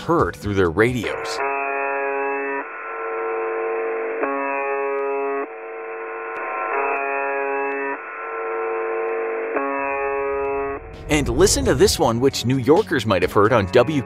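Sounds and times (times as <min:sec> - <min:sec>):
alternating electronic tones: 0:01.1 - 0:12.0.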